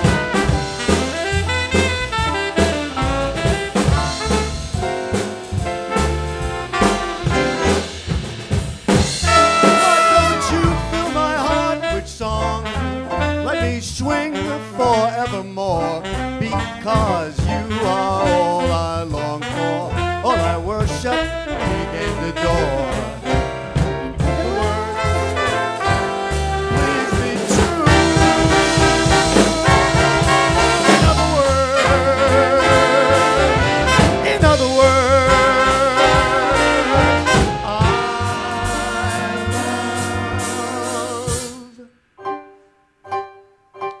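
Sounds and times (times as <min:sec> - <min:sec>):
swing band playing: 0:00.0 - 0:43.9
man singing: 0:09.3 - 0:23.4, 0:24.1 - 0:42.0.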